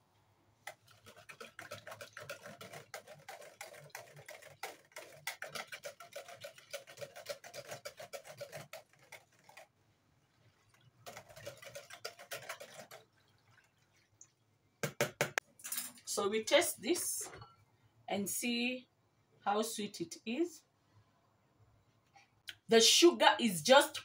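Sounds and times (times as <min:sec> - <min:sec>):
whisk ticking against plastic bucket: 0:00.6 - 0:09.7, 0:10.7 - 0:15.4.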